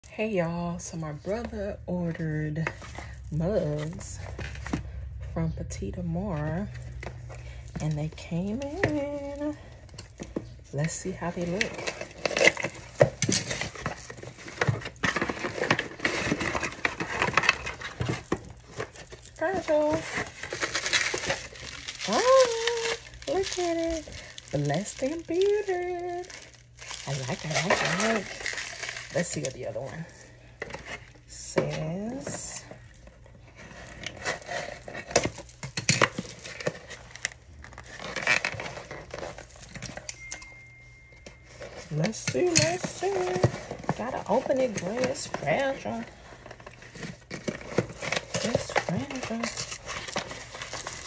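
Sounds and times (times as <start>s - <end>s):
paper package rustling: 6.8s - 51.0s
paper rustling: 11.5s - 29.4s.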